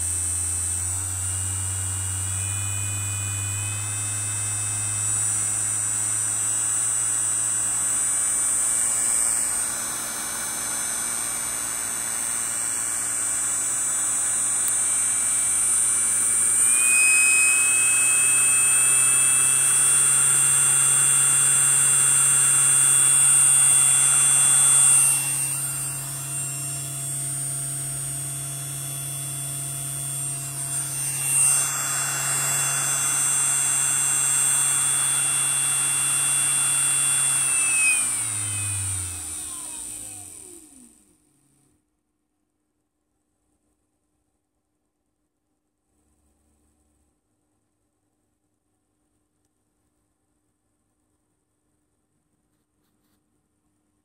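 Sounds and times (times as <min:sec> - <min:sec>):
electric motor hum and whine: 0:00.0 - 0:41.7.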